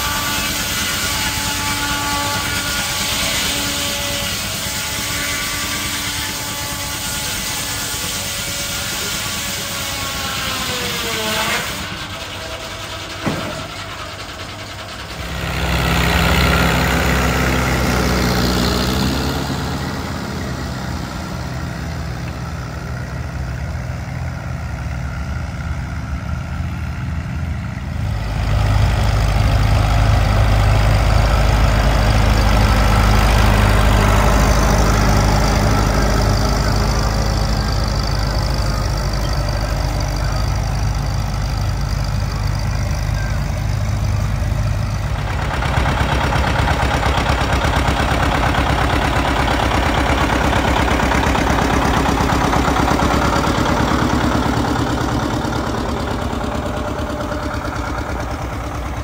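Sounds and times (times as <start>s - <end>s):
low-pitched engine: 0.0s - 59.0s
tractor engines running: 0.0s - 59.0s.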